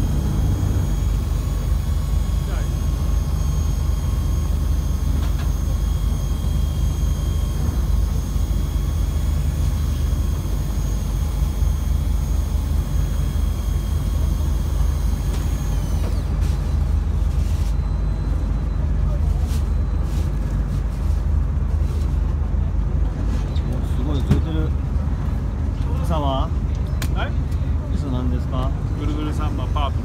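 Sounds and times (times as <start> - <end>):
electric fishing reel motor whine: 0.0 - 18.6
continuous low rumble: 0.0 - 30.0.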